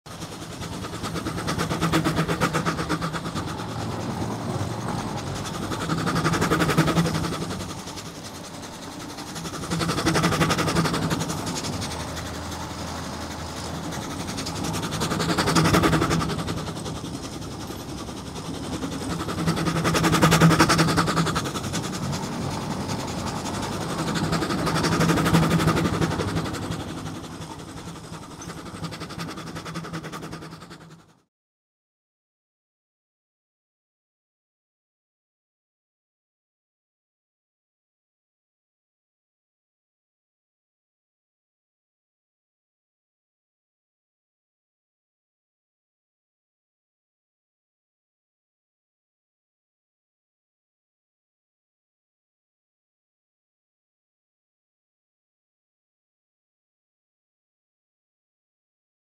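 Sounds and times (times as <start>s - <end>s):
steam traction engine driving: 0.1s - 31.2s.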